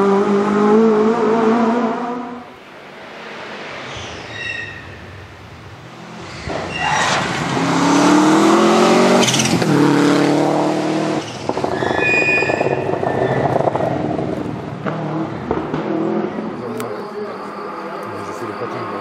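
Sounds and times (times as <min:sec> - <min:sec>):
rally car engine revving: 0:00.0 - 0:02.4, 0:06.1 - 0:19.0
high-pitched squeal: 0:03.6 - 0:05.3, 0:06.2 - 0:07.7, 0:11.2 - 0:14.2, 0:16.3 - 0:19.0.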